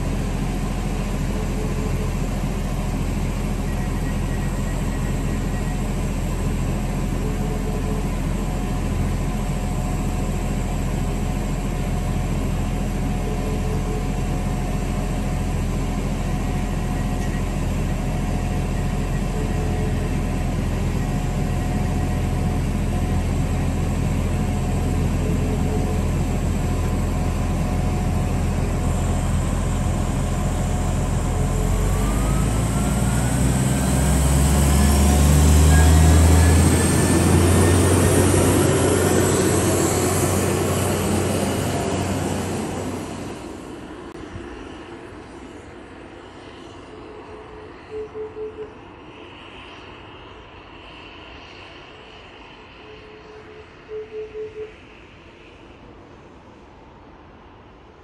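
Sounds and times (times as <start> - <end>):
diesel train engine idling: 0.0 - 45.4
faint short tone: 1.2 - 10.0, 12.7 - 23.8, 34.7 - 37.0, 46.8 - 49.6, 52.5 - 55.6.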